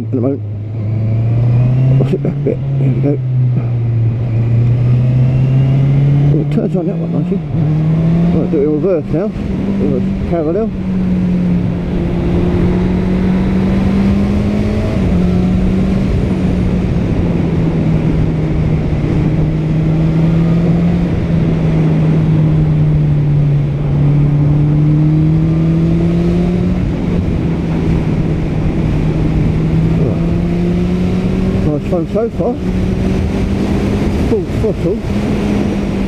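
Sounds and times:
motorcycle engine running: 0:00.0 - 0:36.0
wind rushing over microphone: 0:00.0 - 0:36.0.

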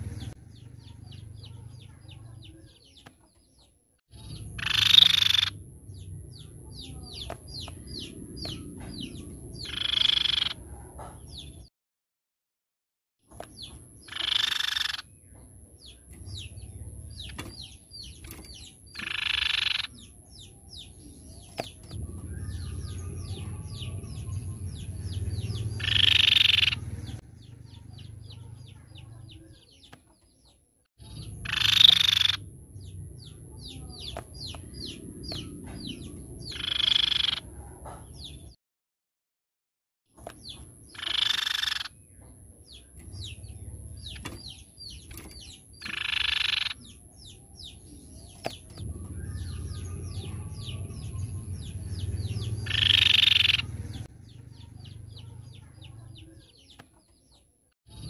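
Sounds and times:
thin bird chirps: 0:00.0 - 0:11.7, 0:13.2 - 0:38.6, 0:40.1 - 0:58.0
bird harsh buzzy calls: 0:04.2 - 0:05.6, 0:06.9 - 0:10.7, 0:13.4 - 0:15.2, 0:15.9 - 0:29.6, 0:31.0 - 0:38.4, 0:40.2 - 0:42.0, 0:42.8 - 0:47.4, 0:48.2 - 0:56.4.

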